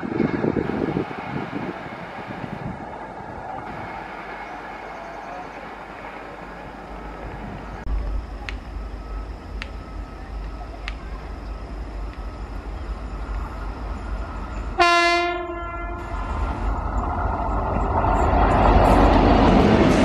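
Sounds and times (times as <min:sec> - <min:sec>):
train rumbling on rails: 0:00.0 - 0:20.0
train horn blast: 0:14.8 - 0:16.2.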